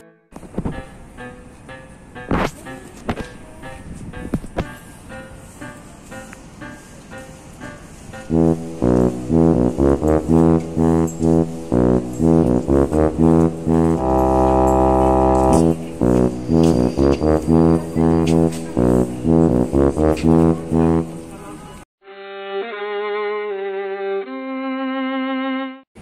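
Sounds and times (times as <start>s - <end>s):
trombone playing short notes: 8.2s - 21.4s
bowed strings phrase: 8.3s - 21.3s.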